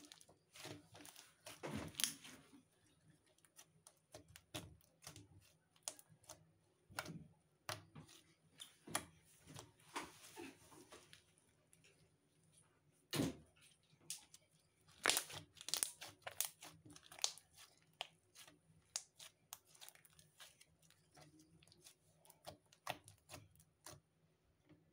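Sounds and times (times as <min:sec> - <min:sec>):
slime crackling and clicking: 0:14.1 - 0:24.0.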